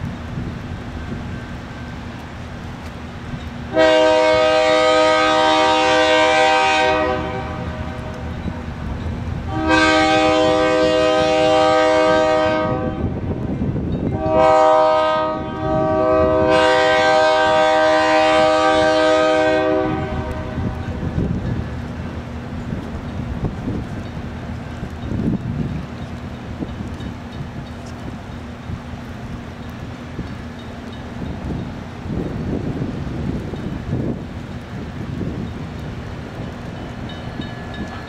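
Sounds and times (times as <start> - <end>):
train air horn blasts: 3.7 - 8.2, 9.5 - 13.3, 14.1 - 21.2.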